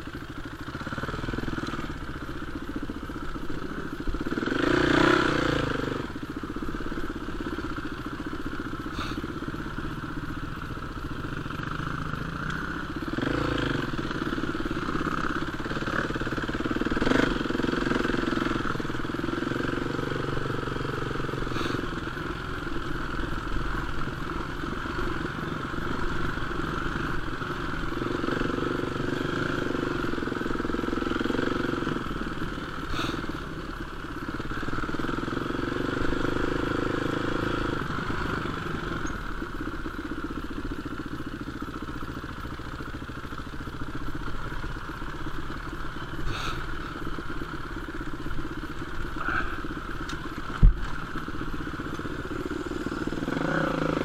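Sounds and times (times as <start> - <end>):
dirt bike engine revving: 3.7 - 6.2, 11.2 - 22.6, 23.4 - 33.6, 34.4 - 39.4, 45.4 - 47.6, 48.7 - 54.0.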